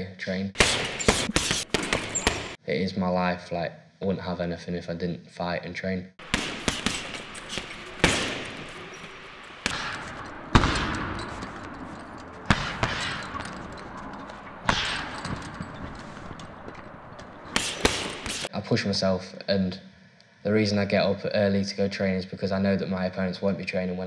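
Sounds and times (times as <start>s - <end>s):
fists punching a heavy bag: 0.6s - 2.6s, 6.2s - 11.7s, 17.5s - 18.5s.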